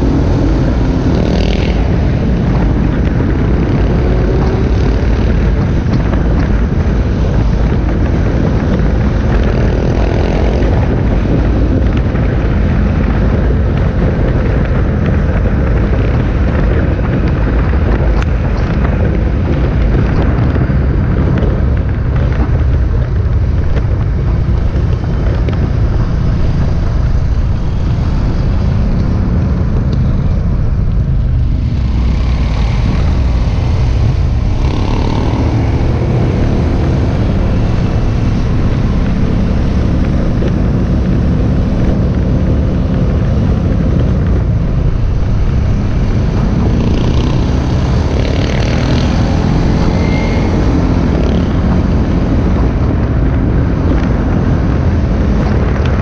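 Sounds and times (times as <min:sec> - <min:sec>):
motorcycles riding past: 0:24.6 - 0:56.0.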